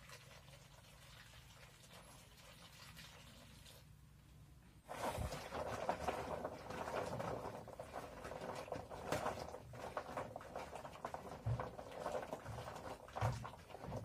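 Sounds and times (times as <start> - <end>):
hard balls clicking in plastic bowl: 5.3 - 14.0.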